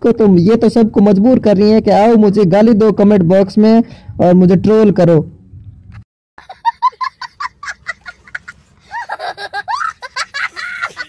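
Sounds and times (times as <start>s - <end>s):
child laughing: 6.4s - 11.0s.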